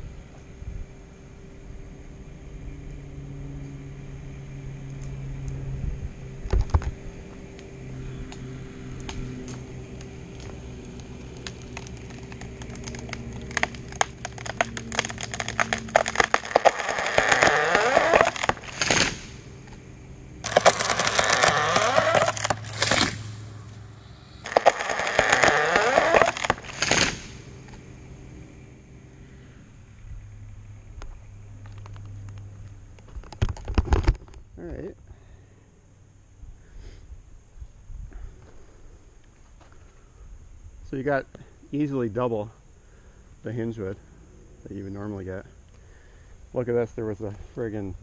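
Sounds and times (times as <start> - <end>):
tree trunk cracking and splintering: 9.0 - 19.4, 20.4 - 27.8
falling tree crashing: 10.3 - 19.5, 20.4 - 27.5.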